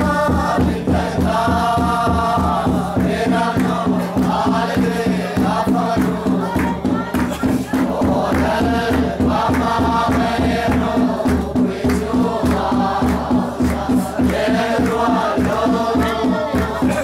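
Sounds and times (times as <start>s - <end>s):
men singing in unison: 0.0s - 17.0s.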